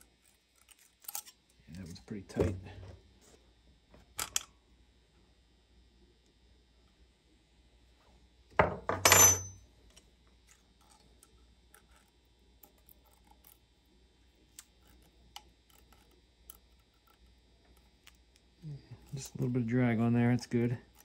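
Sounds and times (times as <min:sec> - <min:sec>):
metal hand tools clinking: 0:09.0 - 0:09.6.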